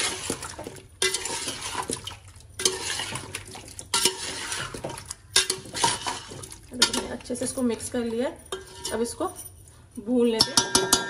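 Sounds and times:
wet mixture squelching: 0.0s - 9.2s
spatula scraping metal pot: 0.0s - 9.3s
metal clinking on metal: 8.3s - 9.7s.

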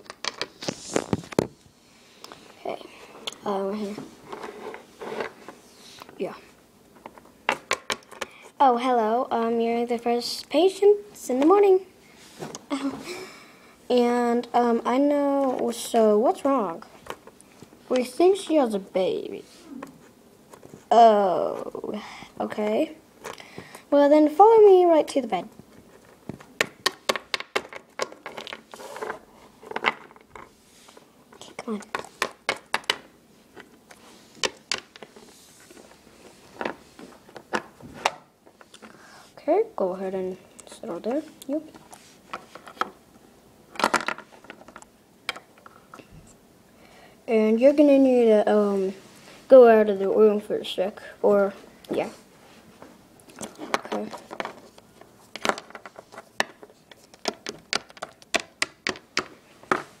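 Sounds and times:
plastic figurines tapping tabletop: 0.0s - 0.5s, 26.3s - 28.6s, 31.9s - 33.1s, 55.3s - 59.9s.

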